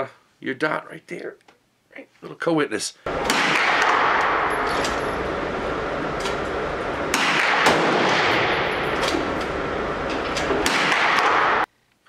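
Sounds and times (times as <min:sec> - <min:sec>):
gunshots with echo: 0:03.1 - 0:04.8, 0:07.0 - 0:09.4, 0:10.5 - 0:11.7.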